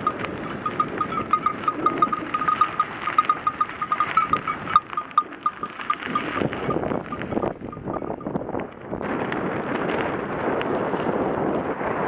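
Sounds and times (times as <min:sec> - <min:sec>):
sheep bells clinking: 0:00.0 - 0:08.6
bicycle tyres on gravel: 0:00.0 - 0:12.0.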